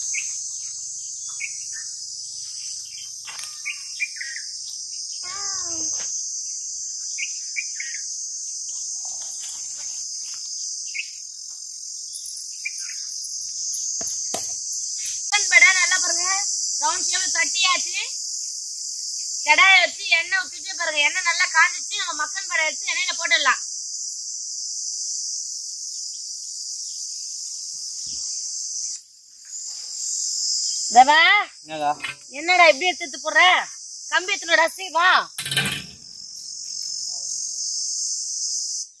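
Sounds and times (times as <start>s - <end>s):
bird chirps: 0.0s - 8.1s, 10.8s - 11.2s, 11.9s - 15.3s
insect chorus drone: 0.0s - 39.0s.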